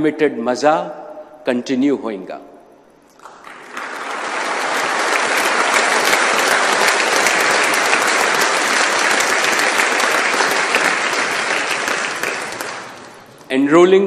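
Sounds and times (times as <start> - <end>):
audience applauding: 3.2 - 13.4.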